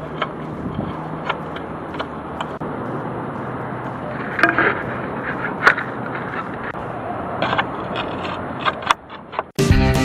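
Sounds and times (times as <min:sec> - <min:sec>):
sharp clicks of roof tile: 0:00.0 - 0:02.6, 0:07.4 - 0:09.6
roof tile scraping: 0:00.0 - 0:09.6.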